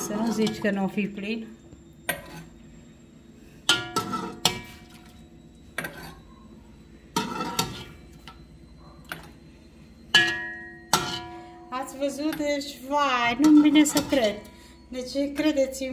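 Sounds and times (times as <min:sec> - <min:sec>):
metal ladle clinking on pot: 0:07.1 - 0:08.0, 0:10.1 - 0:11.4, 0:13.3 - 0:14.4.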